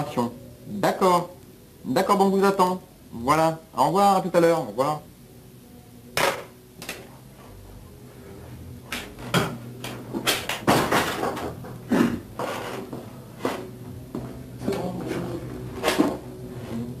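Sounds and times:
low tape hum: 0.0 - 17.0
sharp knocks and clatters: 9.0 - 11.8.

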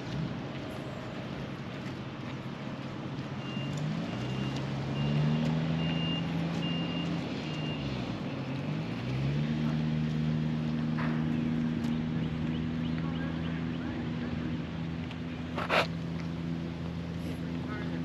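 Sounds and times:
heavy vehicle engine: 0.0 - 18.0
reversing alarm beeping: 3.4 - 7.9.

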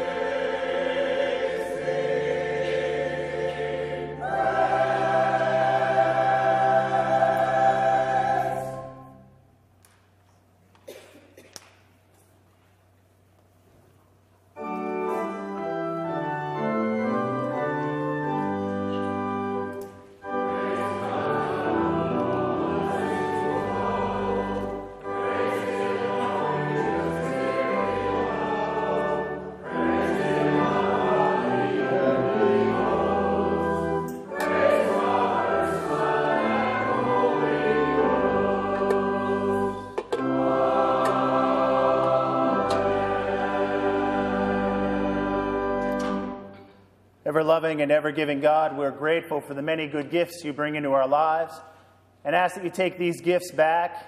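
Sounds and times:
choir singing a hymn: 0.0 - 9.4, 14.6 - 46.6
pipe organ: 0.0 - 9.5, 14.5 - 54.0.

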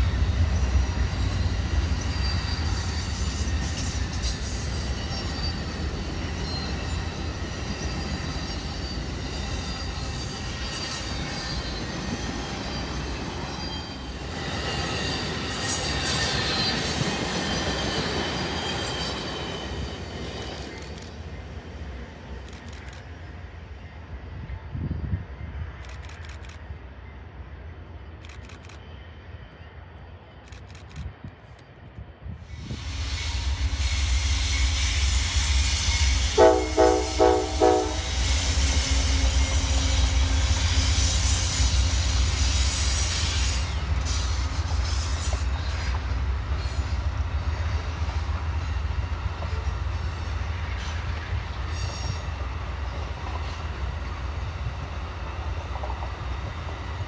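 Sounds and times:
train rumbling on rails: 0.0 - 57.0
locomotive horn blasts: 36.3 - 40.1
clickety-clack wheel noise: 55.4 - 56.3.

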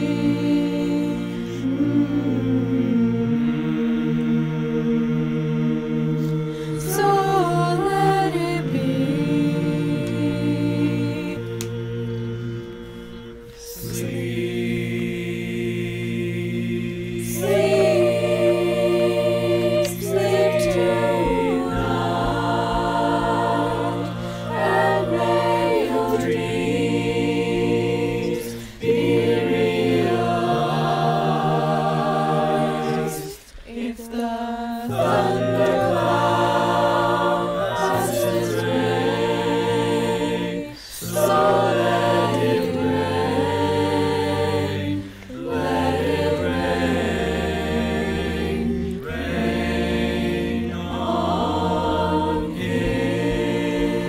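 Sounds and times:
choir singing a cappella: 0.0 - 54.0.

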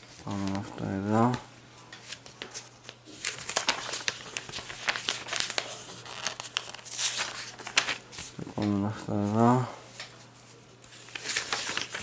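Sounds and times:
paper pages rustling: 0.0 - 12.0
quick paper crackles: 2.1 - 8.4, 10.9 - 12.0.

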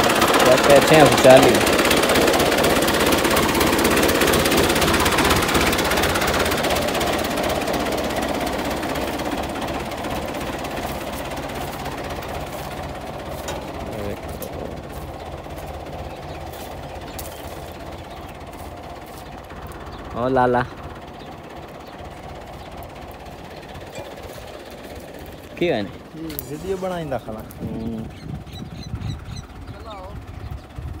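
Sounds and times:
thresher clattering: 10.8 - 14.8.

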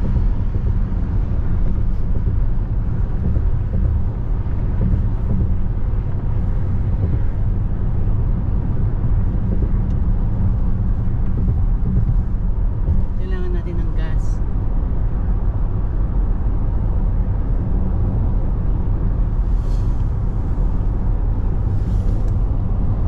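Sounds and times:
car cabin road and engine noise: 0.0 - 23.0.

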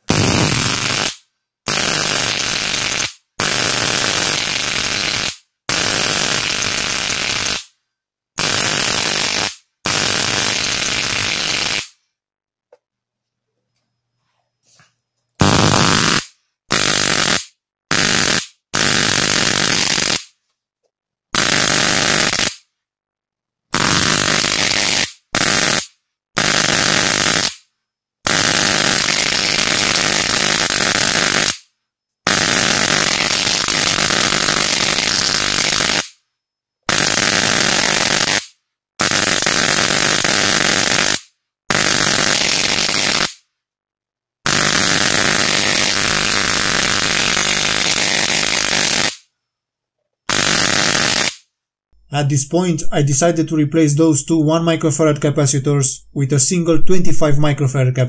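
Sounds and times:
electric spark arcing buzz: 0.0 - 7.7, 8.4 - 12.0, 15.4 - 20.4, 21.4 - 22.6, 23.8 - 27.6, 28.3 - 31.7, 32.3 - 36.2, 36.9 - 43.4, 44.5 - 49.3, 50.3 - 51.4.

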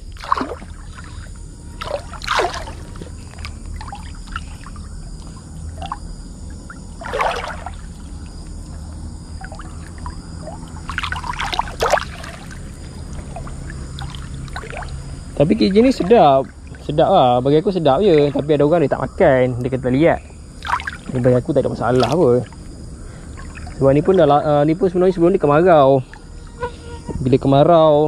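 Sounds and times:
river water splashing: 0.0 - 18.5, 20.6 - 24.4
steady low rumble: 0.0 - 26.2.

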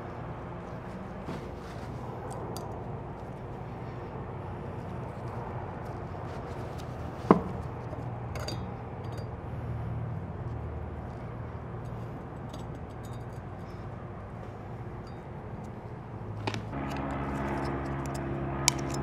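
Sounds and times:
steady low hum: 0.0 - 19.0
metal parts clicking: 16.4 - 19.0.

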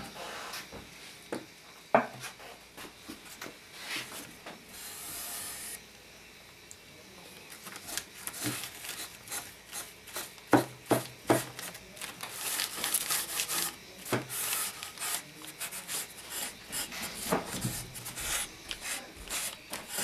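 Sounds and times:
rubbing strokes on wood: 12.3 - 20.0.

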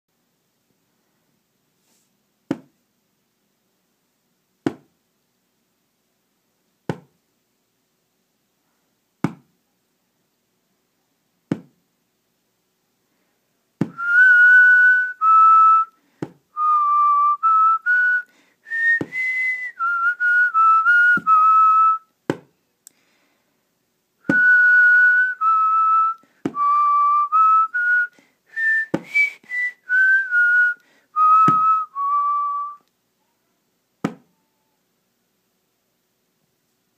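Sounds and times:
person whistling a tune: 13.9 - 16.0, 16.6 - 22.1, 24.2 - 32.8.

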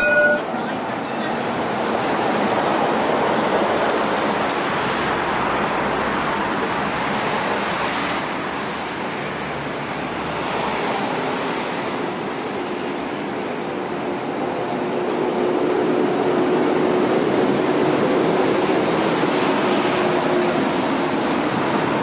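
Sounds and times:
tram rolling along track: 0.0 - 22.0.

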